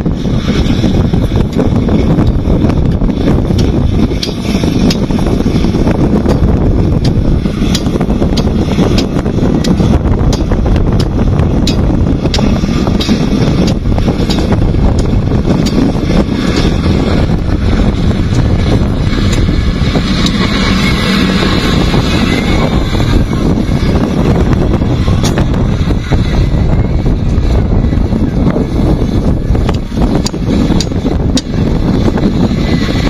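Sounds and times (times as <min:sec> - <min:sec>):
diesel engine under load: 0:00.0 - 0:33.0
wind buffeting microphone: 0:00.0 - 0:33.0.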